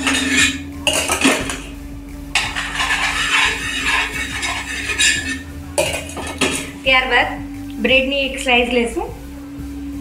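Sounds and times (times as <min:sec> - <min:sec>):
utensil scraping a frying pan: 0:00.0 - 0:06.8
steady low hum: 0:00.0 - 0:10.0.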